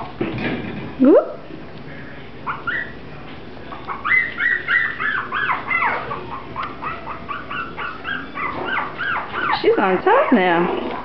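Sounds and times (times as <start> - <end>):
puppies yipping and squealing: 2.4 - 3.1, 3.7 - 11.0
high-pitched puppy yelps: 3.9 - 10.4.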